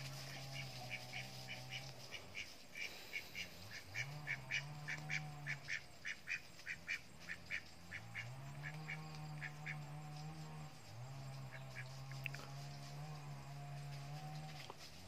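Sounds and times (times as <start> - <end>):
ducks quacking: 0.0 - 10.1.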